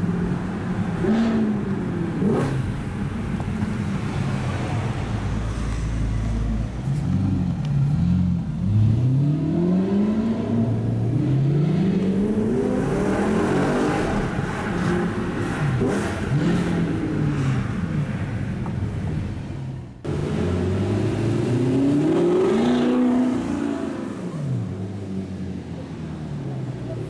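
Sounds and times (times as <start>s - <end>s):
car engine revving: 1.0s - 3.0s, 7.2s - 18.3s, 20.0s - 25.1s.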